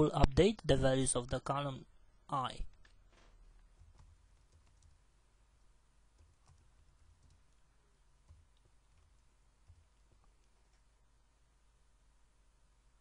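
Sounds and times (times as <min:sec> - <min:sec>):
low steady hum: 0:00.0 - 0:13.0
keystrokes on computer keyboard: 0:03.6 - 0:05.0, 0:06.1 - 0:07.6, 0:08.2 - 0:10.8.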